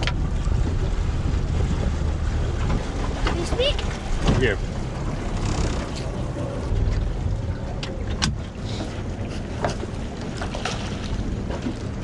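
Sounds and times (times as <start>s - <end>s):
wind and water rumble: 0.0s - 12.0s
sharp knocks on boat: 1.6s - 4.7s, 7.7s - 8.9s
splash in water: 10.4s - 11.3s.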